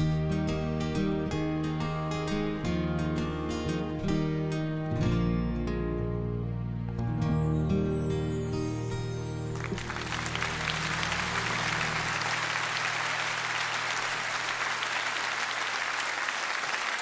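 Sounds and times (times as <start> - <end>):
audience applauding: 9.5 - 17.0.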